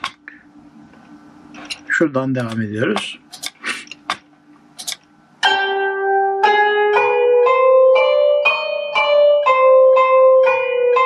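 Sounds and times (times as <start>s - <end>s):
plucked-string melody: 5.4s - 11.0s.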